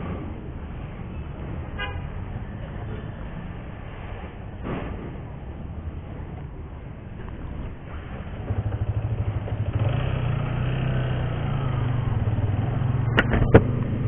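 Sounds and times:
motorcycle engine at low revs: 0:07.1 - 0:14.0.

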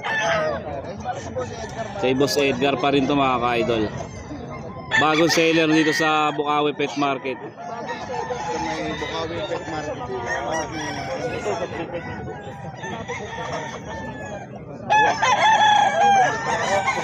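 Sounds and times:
roosters crowing and clucking: 0:00.0 - 0:17.0
long loud rooster crow: 0:13.1 - 0:17.0.

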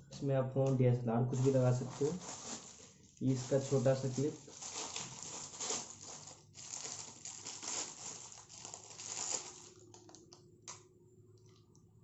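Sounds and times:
plastic packaging crinkling: 0:01.3 - 0:10.4.

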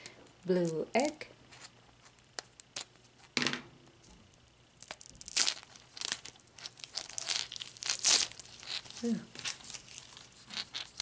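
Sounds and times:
tape ripping off plastic: 0:04.8 - 0:11.0.

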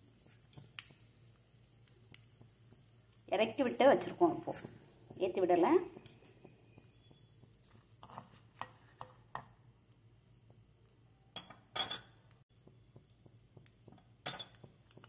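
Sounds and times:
seeds popping in hot oil: 0:00.0 - 0:15.0
spoon stirring in pan: 0:04.0 - 0:09.7
spoon scraping and tapping: 0:08.0 - 0:09.6, 0:11.3 - 0:15.0.

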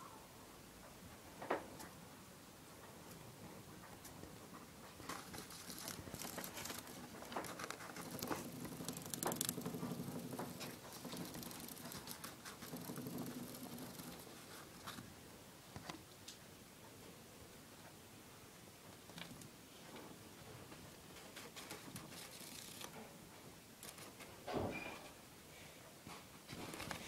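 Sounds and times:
gerbil gnawing and crunching: 0:04.9 - 0:15.0, 0:21.4 - 0:23.1.

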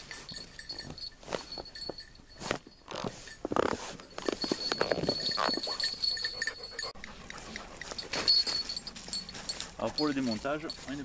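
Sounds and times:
camp cot creaking: 0:02.4 - 0:05.9.

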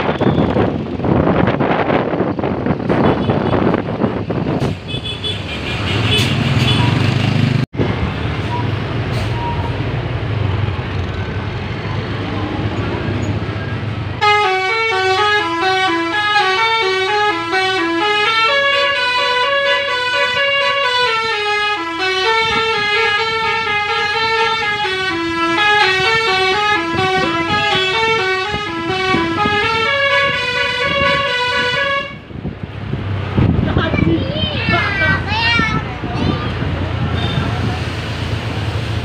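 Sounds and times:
bus engine low hum: 0:00.0 - 0:39.0
bus melody horn playing a tune: 0:14.2 - 0:32.3.

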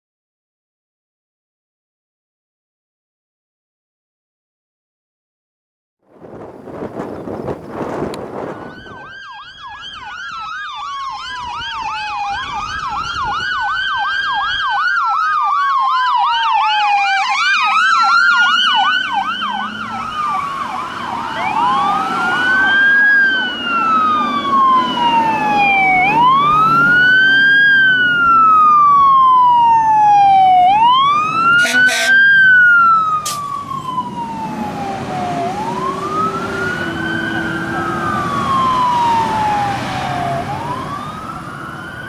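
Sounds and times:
truck engine rumble: 0:06.2 - 0:42.0
siren wailing: 0:08.3 - 0:42.0
siren yelping: 0:08.4 - 0:42.0.

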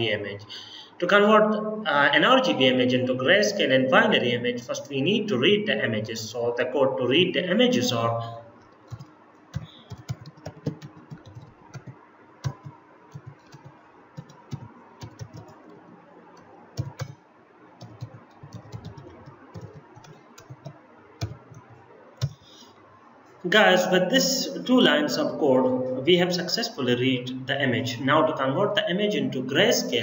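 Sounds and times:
computer keyboard typing: 0:08.9 - 0:15.8, 0:16.8 - 0:17.2, 0:17.8 - 0:22.4.

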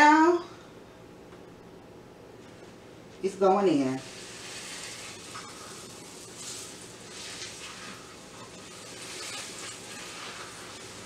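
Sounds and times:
meat searing in hot oil: 0:03.7 - 0:11.0.

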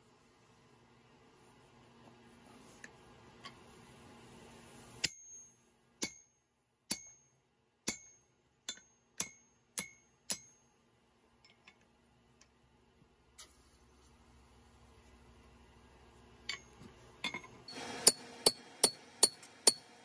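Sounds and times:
hammer striking steel on anvil: 0:05.0 - 0:10.8, 0:16.5 - 0:20.0.

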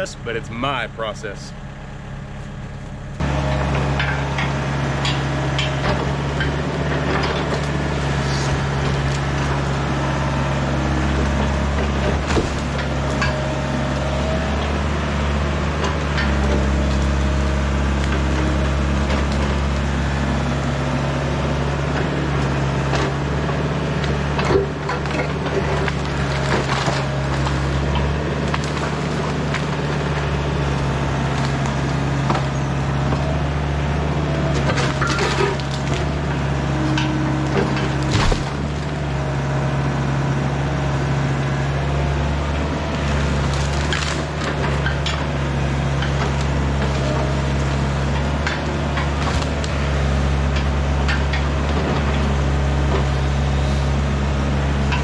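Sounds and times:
excavator diesel engine running: 0:00.0 - 0:55.0
wood cracking and snapping: 0:08.4 - 0:09.5, 0:11.3 - 0:13.5, 0:24.0 - 0:33.2, 0:34.5 - 0:39.2, 0:42.8 - 0:52.0.

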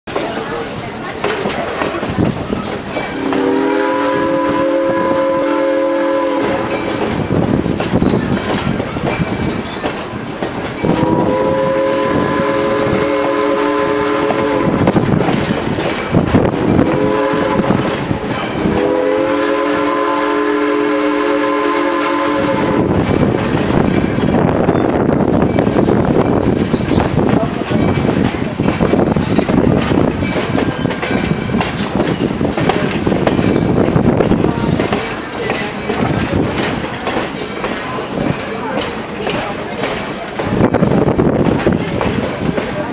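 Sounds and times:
train wheels clattering on rails: 0:00.1 - 0:42.9
steam locomotive chime whistle: 0:03.1 - 0:07.0, 0:10.8 - 0:14.8, 0:16.8 - 0:17.9, 0:18.6 - 0:23.0.

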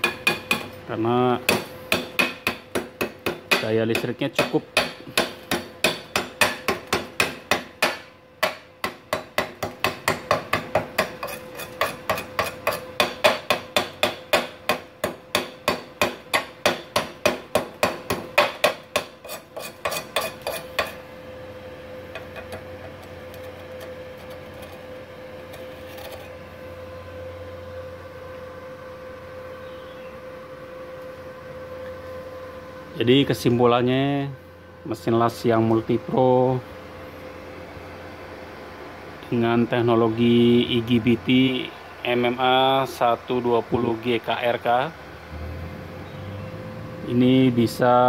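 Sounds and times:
chipping hammer tapping steel: 0:00.0 - 0:00.8, 0:01.4 - 0:21.0
steady hum with faint tone: 0:00.0 - 0:48.0.

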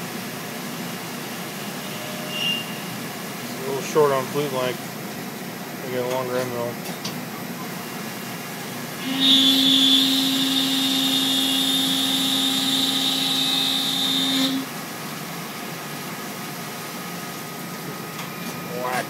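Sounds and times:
milling machine cutter whine: 0:08.9 - 0:15.6.

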